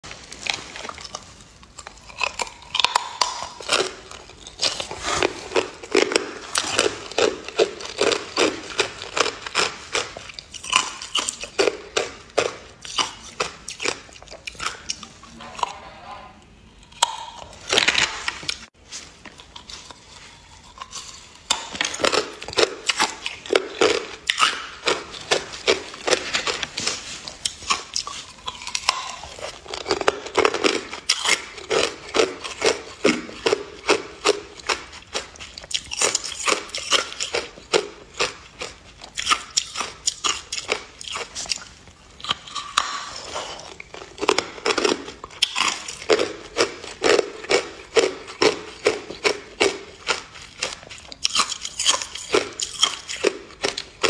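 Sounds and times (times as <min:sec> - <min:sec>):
ice crunched between teeth: 0:20.7 - 0:54.0.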